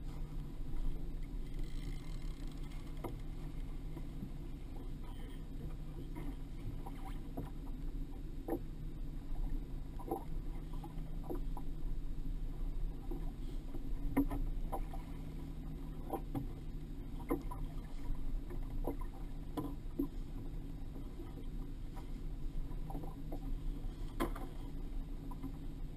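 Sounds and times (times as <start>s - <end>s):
low rumble: 0.0s - 25.9s
waves knocking against boat hull: 13.0s - 25.8s.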